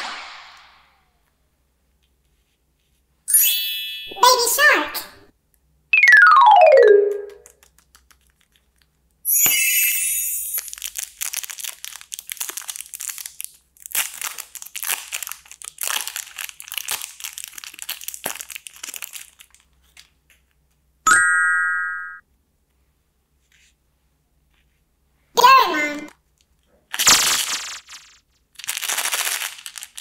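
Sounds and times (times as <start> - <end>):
short ringing tone: 3.3 - 4.2
plastic wrapper crinkling and tearing: 7.4 - 9.0, 10.5 - 20.4, 26.9 - 30.0.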